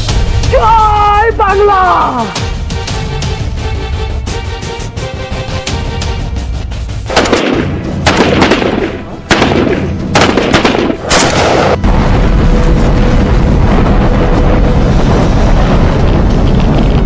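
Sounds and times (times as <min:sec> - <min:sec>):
background music: 0:00.0 - 0:17.0
gunshots: 0:07.1 - 0:11.8
explosion blasts: 0:07.1 - 0:17.0.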